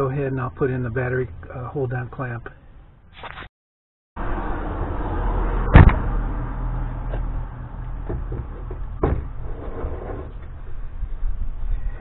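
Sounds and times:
small clunks and scrapes: 8.0 - 10.6.

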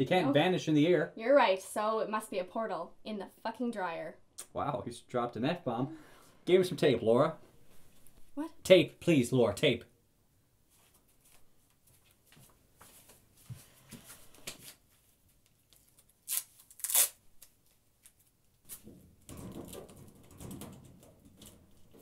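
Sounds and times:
adhesive tape pulled and torn: 15.7 - 18.8
short sharp tape rasps: 16.2 - 17.5
small clicks and rustles: 17.4 - 22.0.

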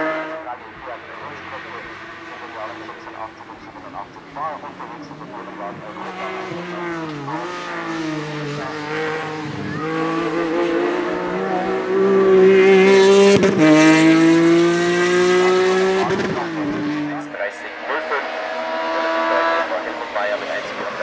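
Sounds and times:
engine upshifts: 0.0 - 21.0
race car accelerating hard: 0.0 - 21.0.

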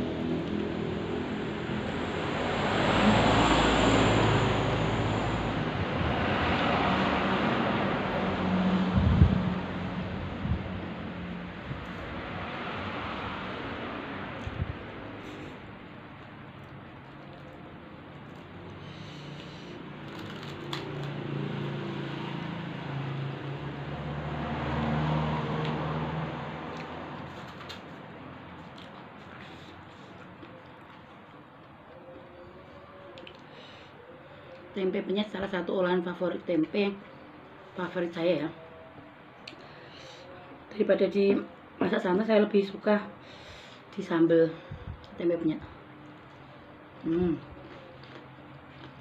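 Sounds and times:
motor vehicle passing by: 0.0 - 35.5
rushing noise with low rumble: 0.2 - 15.2.

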